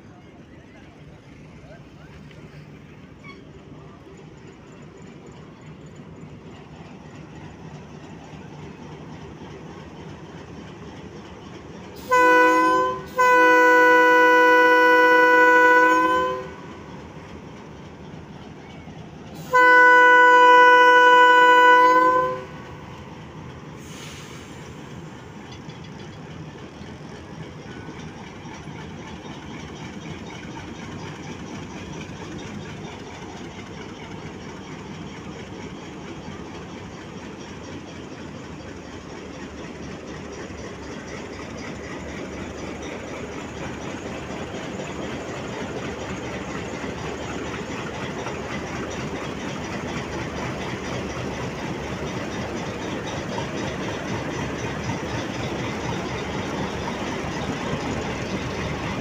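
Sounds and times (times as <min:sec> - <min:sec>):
locomotive horn blasts: 0:12.0 - 0:16.9, 0:19.4 - 0:22.6.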